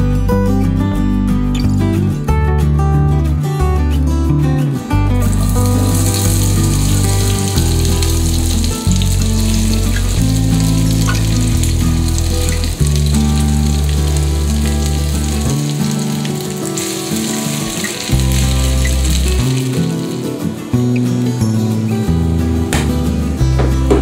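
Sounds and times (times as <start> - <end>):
background music with low notes: 0.0 - 24.0
potatoes sizzling in hot oil: 5.2 - 21.3.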